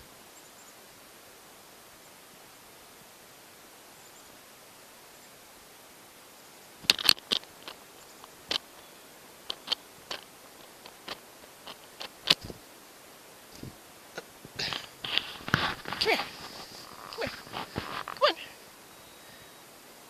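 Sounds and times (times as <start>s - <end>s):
bird seed clicks and crunches: 6.8s - 12.6s, 14.5s - 18.3s
rustling: 6.8s - 12.8s, 13.4s - 19.6s.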